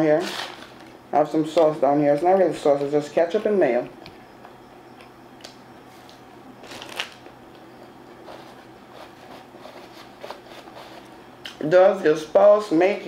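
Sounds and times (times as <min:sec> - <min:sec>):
paper wrappers crinkling: 0:06.6 - 0:07.3.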